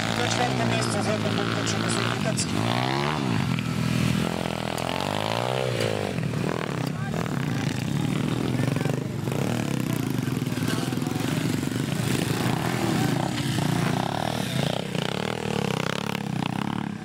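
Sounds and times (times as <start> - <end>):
pit bike engines running: 0.0 - 17.0
voices in background: 6.5 - 17.0.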